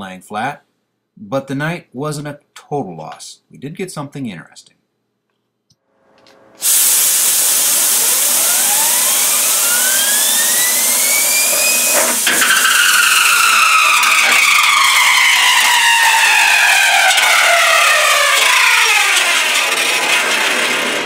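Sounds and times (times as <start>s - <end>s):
spinning bearing whining: 6.2s - 21.0s
compressed air hissing: 6.6s - 18.6s.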